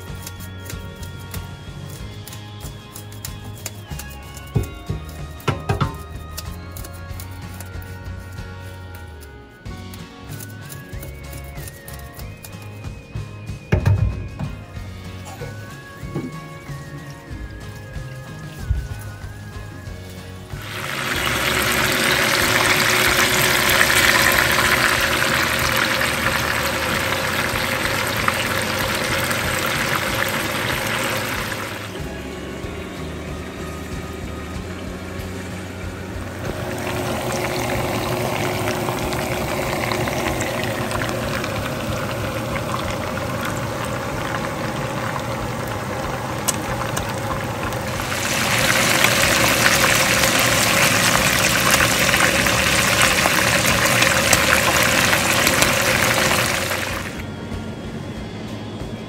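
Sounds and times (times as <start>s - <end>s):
hot oil sizzling: 0.0s - 8.6s, 17.6s - 57.2s
tap water running into metal sink: 20.5s - 32.0s, 36.2s - 57.2s.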